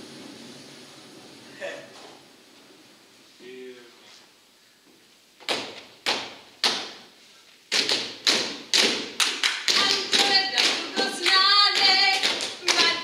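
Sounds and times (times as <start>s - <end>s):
voices over a beat: 9.7s - 13.0s.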